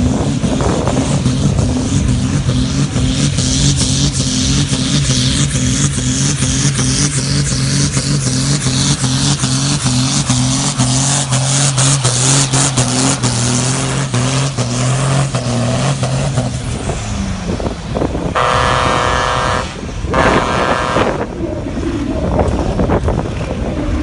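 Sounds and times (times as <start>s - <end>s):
diesel engine at full load: 0.0s - 24.0s
horn blasts: 18.4s - 21.3s.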